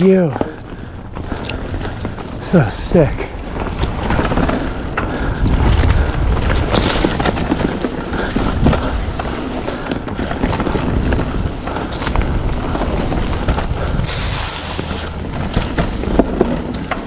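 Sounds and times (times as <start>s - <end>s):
bike rattling and knocking: 0.0s - 17.0s
bike tyres on dirt: 0.0s - 17.0s
wind on microphone: 3.3s - 17.0s.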